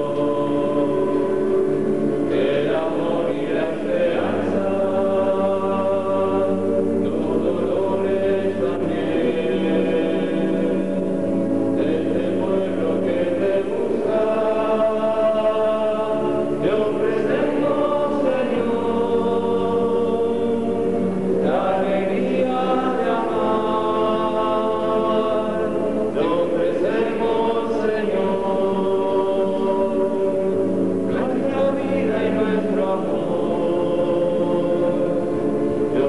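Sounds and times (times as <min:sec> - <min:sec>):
choir singing a hymn: 0:00.0 - 0:36.0.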